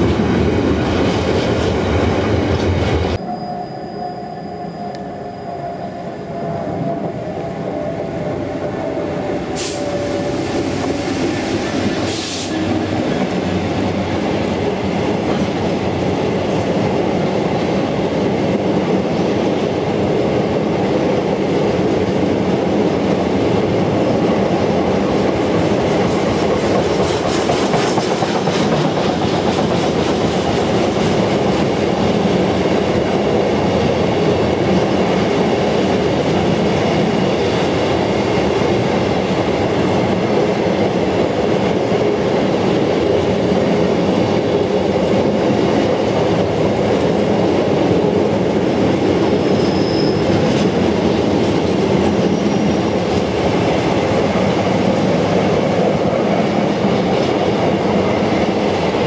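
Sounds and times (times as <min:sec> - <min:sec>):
train wheels clattering over rails: 0:21.7 - 0:59.0.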